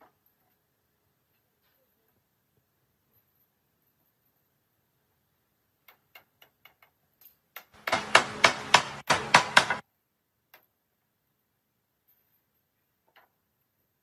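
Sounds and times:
hammer striking wooden frame: 7.7 - 9.8.

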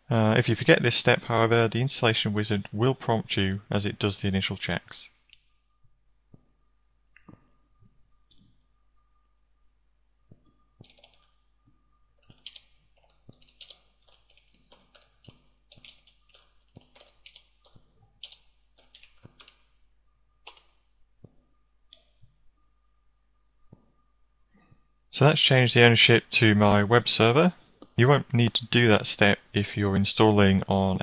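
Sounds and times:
keyboard typing: 10.3 - 19.7, 20.4 - 22.1.

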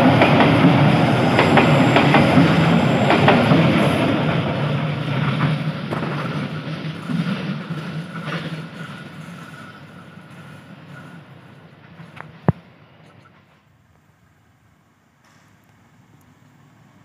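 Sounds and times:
train wheel clacks: 0.0 - 12.6
diesel train rumbling: 0.0 - 13.6.

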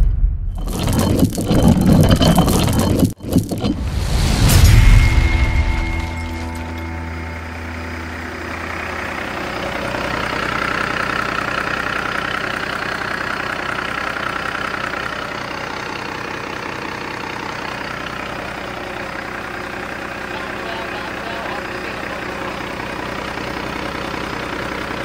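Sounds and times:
diesel engine idling: 5.0 - 25.0.

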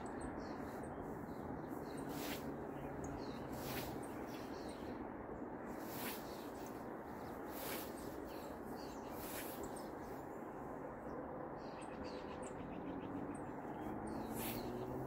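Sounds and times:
birds chirping: 0.0 - 15.0
scythe swishing through grass: 2.0 - 2.6, 3.4 - 4.4, 5.8 - 6.8, 7.5 - 8.1, 9.2 - 9.6, 14.3 - 14.8.

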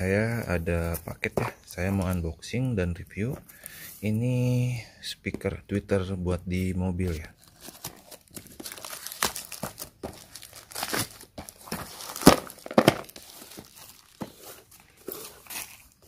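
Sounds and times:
plastic mailer crinkling and ripping: 7.4 - 16.0.

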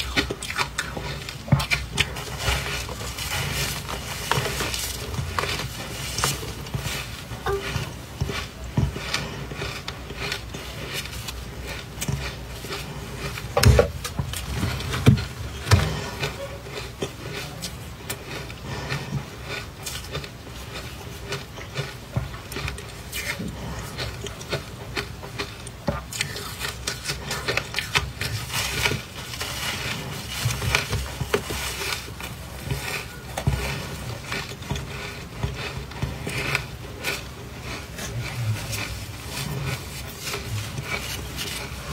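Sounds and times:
chewing crunchy ice: 0.0 - 41.9.

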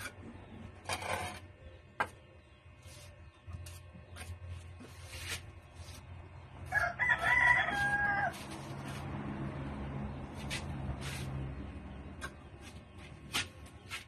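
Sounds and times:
trowel scraping mortar: 0.8 - 1.5
rooster crowing: 6.6 - 8.8.

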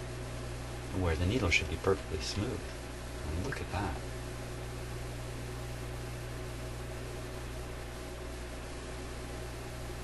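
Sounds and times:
constant hiss: 0.0 - 10.0
low electrical hum: 0.0 - 10.0.

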